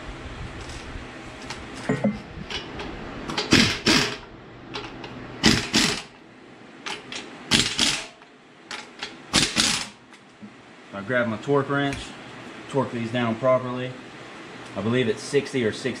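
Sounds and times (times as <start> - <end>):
impact wrench bursts: 3.3 - 6.2, 6.9 - 8.2, 8.8 - 10.0.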